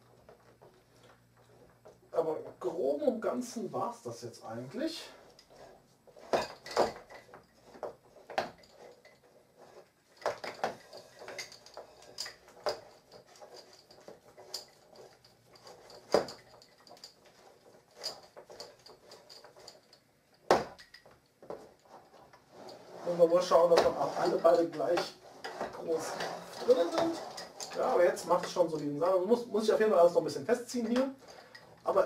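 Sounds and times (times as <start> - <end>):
wooden bars knocking and clacking: 6.2 - 9.2.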